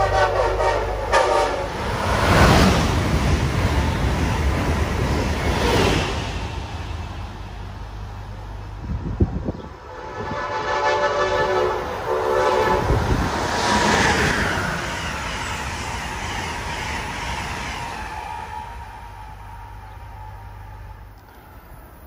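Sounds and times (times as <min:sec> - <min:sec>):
train horn blasts: 0:00.0 - 0:01.8, 0:09.8 - 0:13.2
train rushing by: 0:00.0 - 0:22.0.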